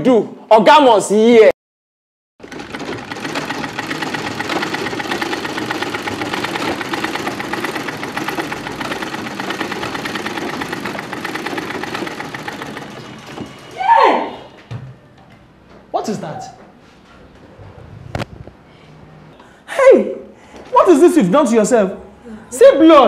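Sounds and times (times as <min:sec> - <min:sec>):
sewing machines clattering: 0:02.4 - 0:14.5
loud cry falling in pitch: 0:13.7 - 0:14.5.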